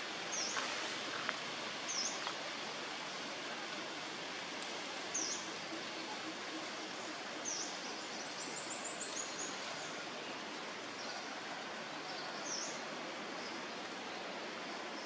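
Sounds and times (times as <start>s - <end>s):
outdoor hiss: 0.0s - 15.0s.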